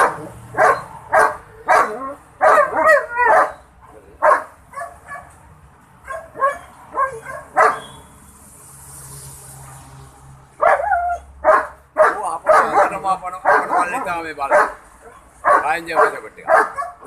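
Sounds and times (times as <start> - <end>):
dogs barking: 0.0 - 5.4, 6.0 - 7.9, 10.6 - 17.0.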